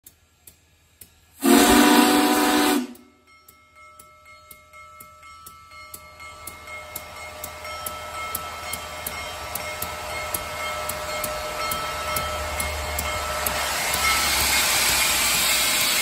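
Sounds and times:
hiss of steam: 0:01.3 - 0:03.0, 0:08.7 - 0:16.0
steam locomotive whistle blast: 0:01.4 - 0:03.2
locomotive bell ringing: 0:03.0 - 0:16.0.

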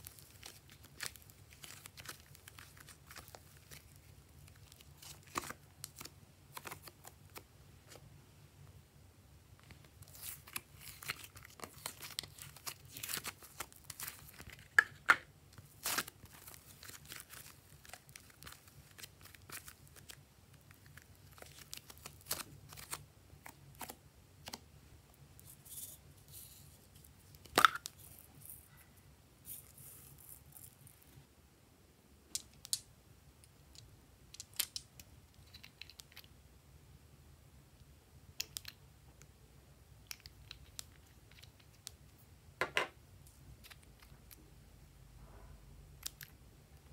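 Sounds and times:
plastic containers crinkling: 0:00.0 - 0:07.4, 0:10.0 - 0:23.0.

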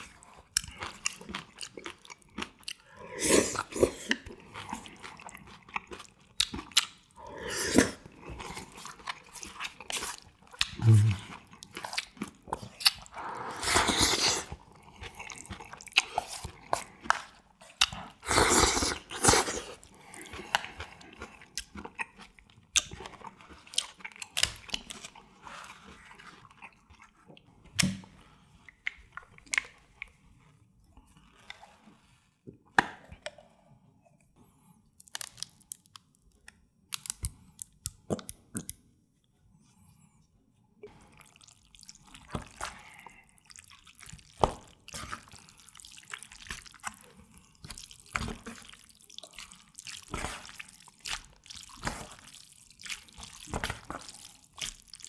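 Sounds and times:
chewing with small clicks: 0:00.0 - 0:02.9, 0:04.1 - 0:07.2, 0:08.4 - 0:13.2, 0:19.8 - 0:25.2, 0:40.8 - 0:55.0
slurping noodles: 0:02.9 - 0:05.3, 0:07.2 - 0:17.4, 0:18.0 - 0:21.0.

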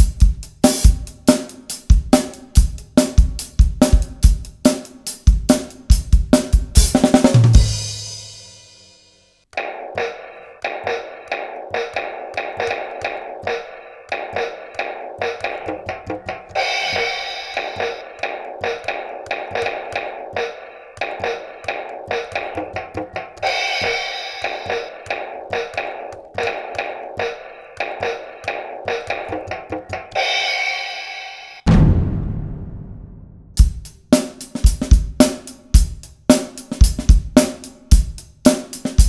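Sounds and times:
electronic drum beat: 0:00.0 - 0:08.8, 0:09.5 - 0:39.0
fingertip taps on pads: 0:09.6 - 0:30.2
cymbal crash: 0:16.6 - 0:18.3, 0:23.4 - 0:24.9, 0:30.2 - 0:33.6.

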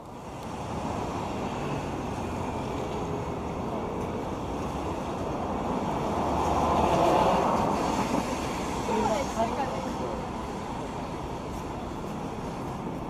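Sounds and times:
traffic hiss on wet pavement: 0:00.0 - 0:13.0
rain: 0:04.5 - 0:12.4.

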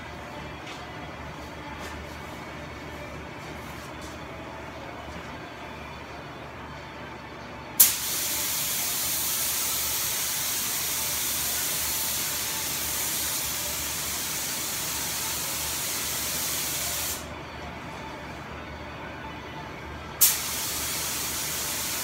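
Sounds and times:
paint spray gun hissing: 0:07.8 - 0:17.2, 0:20.2 - 0:22.0.

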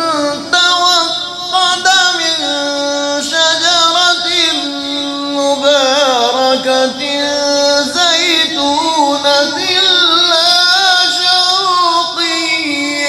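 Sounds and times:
man reciting melodically: 0:00.0 - 0:13.0.

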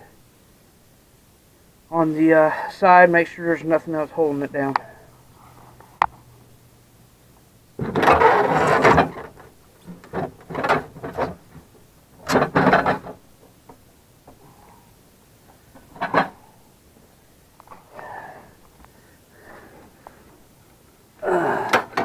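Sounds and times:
wooden drawer scraping and rattling: 0:07.8 - 0:11.6, 0:12.2 - 0:13.2.

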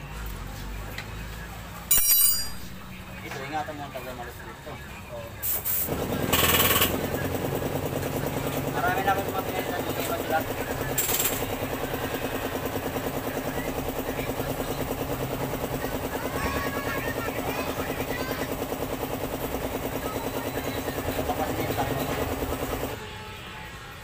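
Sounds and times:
small engine running: 0:05.9 - 0:23.0.

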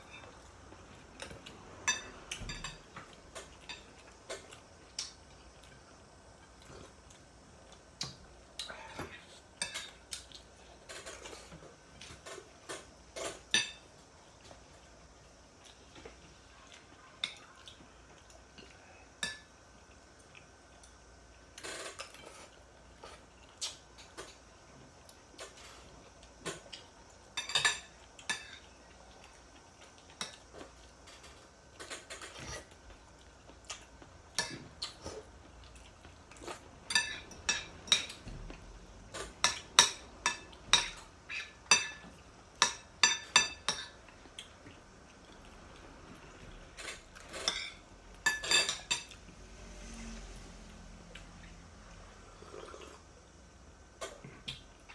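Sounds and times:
cutlery clinking on plates: 0:27.4 - 0:28.7, 0:36.9 - 0:38.2, 0:46.8 - 0:49.2.

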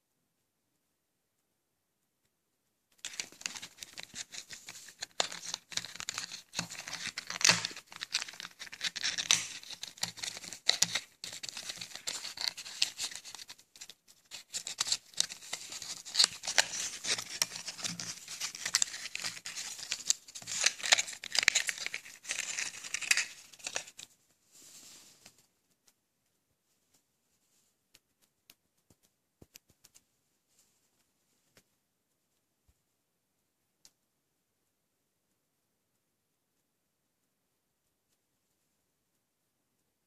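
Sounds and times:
packaging crinkling: 0:03.0 - 0:24.1.

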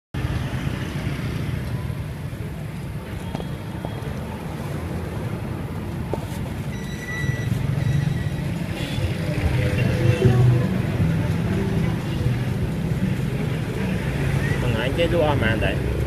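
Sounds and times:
low rumble of street traffic: 0:00.2 - 0:16.0.

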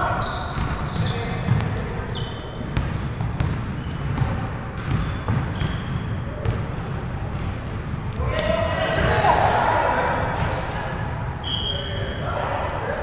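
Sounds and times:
sneakers squeaking: 0:00.0 - 0:12.4
basketball bouncing on wooden floor: 0:02.8 - 0:05.8.

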